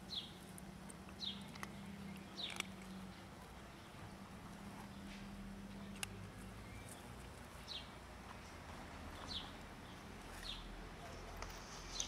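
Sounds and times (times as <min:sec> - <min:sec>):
bird chirping: 0:00.0 - 0:00.4, 0:01.1 - 0:04.2, 0:04.8 - 0:10.7
faint outdoor hum: 0:00.0 - 0:12.0.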